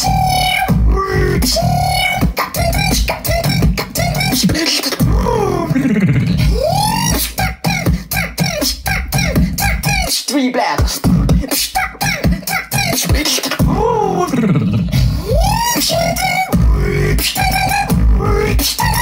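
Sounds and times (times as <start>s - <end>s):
beatboxed low bass: 0.0s - 10.2s, 10.8s - 19.0s
beatboxing drum sounds: 0.0s - 19.0s
sliding vocal tones: 0.0s - 19.0s.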